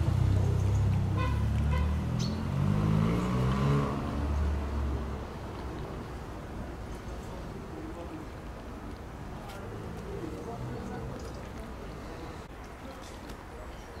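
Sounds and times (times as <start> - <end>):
vehicle engine accelerating: 0.0 - 5.3.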